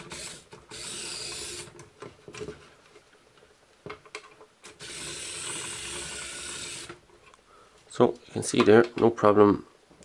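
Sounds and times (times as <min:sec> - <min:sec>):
gear motor whirring: 0:00.0 - 0:01.7, 0:04.8 - 0:07.0.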